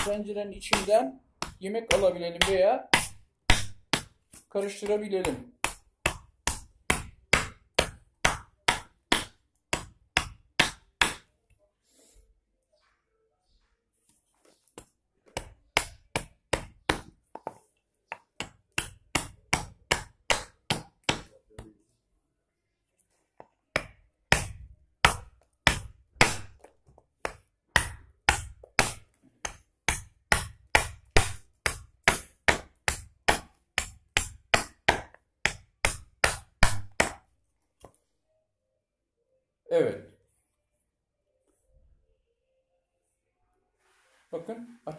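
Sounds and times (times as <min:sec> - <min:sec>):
adze chopping wood: 0:00.0 - 0:11.3, 0:15.4 - 0:17.2, 0:18.4 - 0:21.4, 0:23.8 - 0:37.2.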